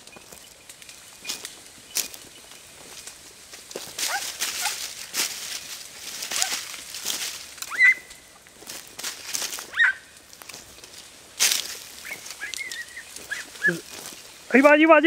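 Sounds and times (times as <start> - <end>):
hounds yelping: 3.9 - 5.0, 6.2 - 6.8, 7.6 - 8.4, 9.5 - 10.2, 11.8 - 14.2.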